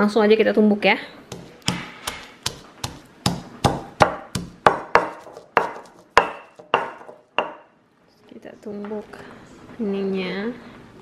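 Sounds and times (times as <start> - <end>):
stone pestle pounding in mortar: 1.3 - 7.7.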